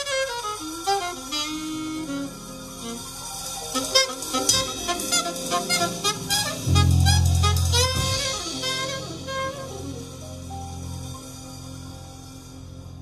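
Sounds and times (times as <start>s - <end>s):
small jazz group playing: 0.0s - 13.0s
deep bass note: 6.4s - 10.5s.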